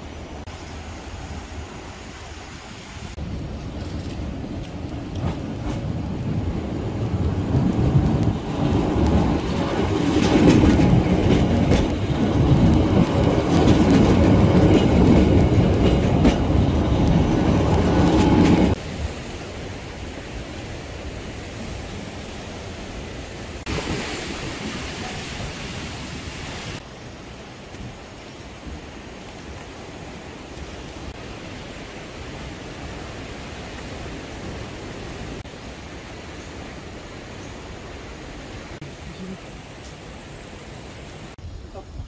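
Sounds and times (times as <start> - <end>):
train wheels rumbling on rails: 3.2 - 25.4.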